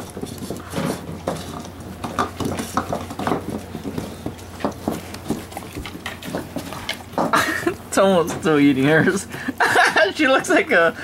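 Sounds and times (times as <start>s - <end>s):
bowls scraping on tile floor: 0.0s - 7.4s
dogs licking and gobbling: 0.0s - 7.9s.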